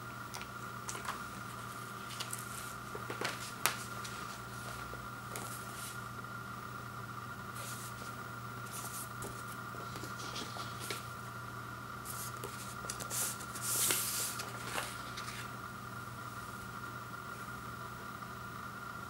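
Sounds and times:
steady hum: 0:00.0 - 0:19.0
paper sleeve rustling: 0:00.9 - 0:06.0, 0:07.6 - 0:11.1, 0:12.1 - 0:15.5.

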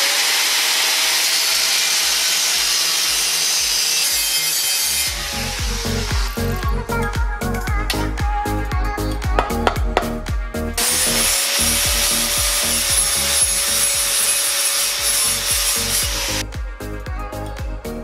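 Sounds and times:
angle grinder grinding metal: 0:00.0 - 0:07.1, 0:10.8 - 0:16.5
background music with a beat: 0:05.1 - 0:18.0.

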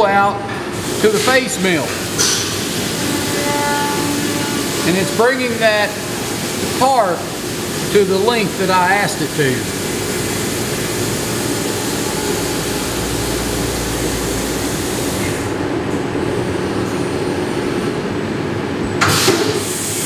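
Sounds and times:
milling machine hum: 0:00.7 - 0:18.9
hiss of coolant spray: 0:00.8 - 0:15.6, 0:19.0 - 0:20.0.

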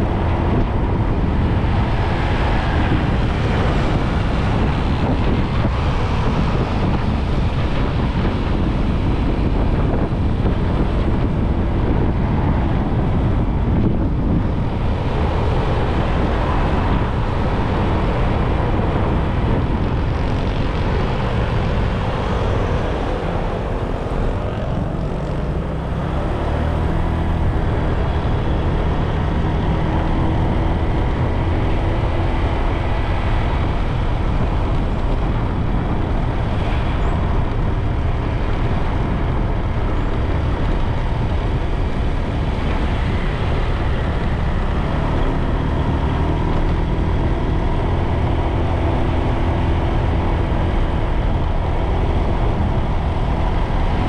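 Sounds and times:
wind rushing over microphone: 0:00.0 - 0:54.0.

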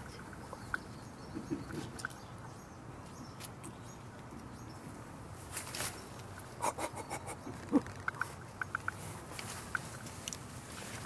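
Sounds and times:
cat walking through dry leaves: 0:09.0 - 0:11.0.

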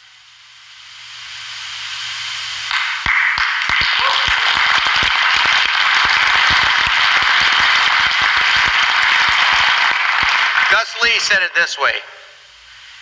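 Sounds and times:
audience applauding and cheering: 0:02.7 - 0:11.3.

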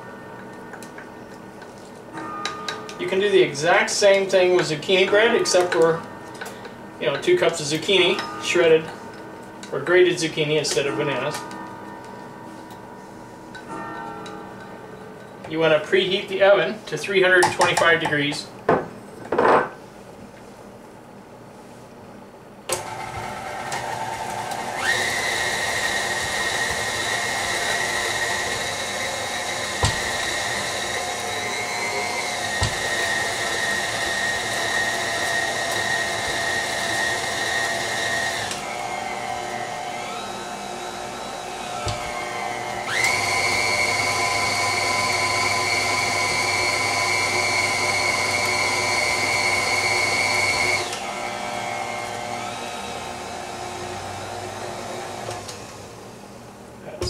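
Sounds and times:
stand mixer motor whining: 0:22.7 - 0:56.3.

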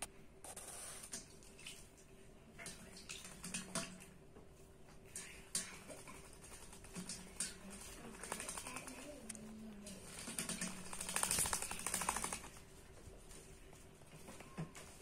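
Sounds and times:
bird splashing in water: 0:10.0 - 0:12.5.

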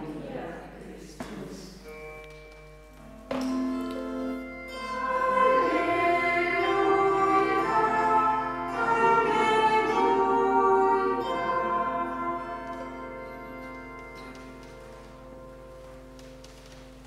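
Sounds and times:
sustained instrumental chords: 0:01.8 - 0:17.0
voices singing in unison: 0:04.8 - 0:14.0.

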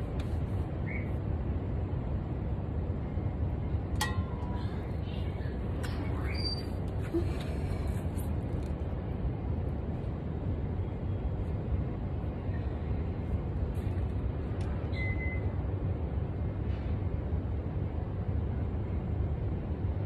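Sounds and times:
city traffic rumble: 0:00.0 - 0:20.0
faint high chirp: 0:06.0 - 0:06.8, 0:14.9 - 0:15.5.

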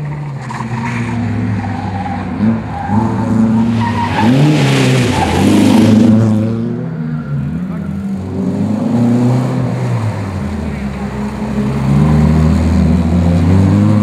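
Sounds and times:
rally car engine revving: 0:00.0 - 0:14.0
tyres sliding on gravel: 0:00.2 - 0:06.4.

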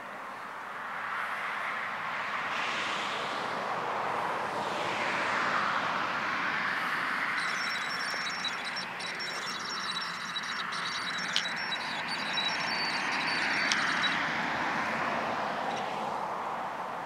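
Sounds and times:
high fluttering whine: 0:06.9 - 0:14.3.

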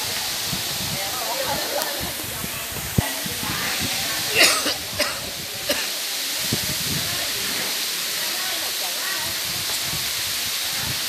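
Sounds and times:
faint voices: 0:00.0 - 0:11.0
rushing hiss: 0:00.0 - 0:11.0
person coughing: 0:04.3 - 0:05.9.

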